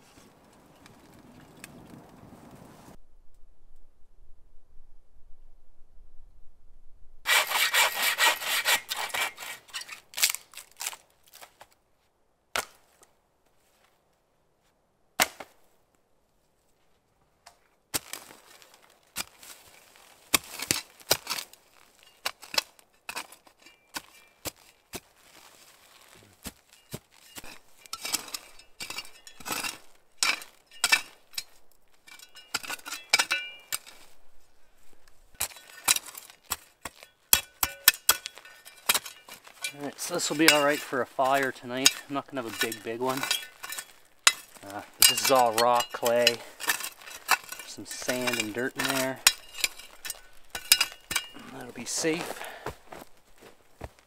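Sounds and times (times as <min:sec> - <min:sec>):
shovel scraping and digging soil: 0:07.3 - 0:11.7, 0:18.0 - 0:54.0.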